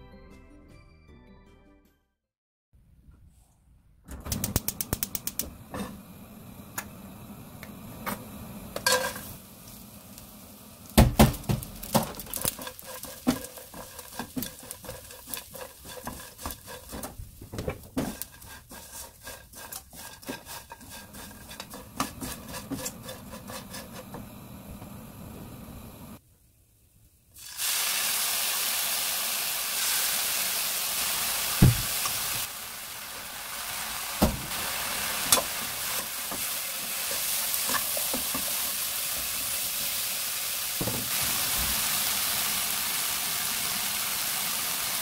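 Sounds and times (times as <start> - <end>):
spatula stirring food in wok: 10.9 - 24.6, 34.5 - 40.2
pan clattering: 11.3 - 24.0.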